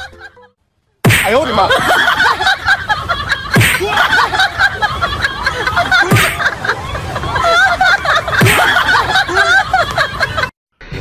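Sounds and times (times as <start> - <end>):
sharp smacks: 1.0 - 1.4, 3.6 - 3.9, 6.1 - 6.4
arena crowd noise: 1.3 - 10.5.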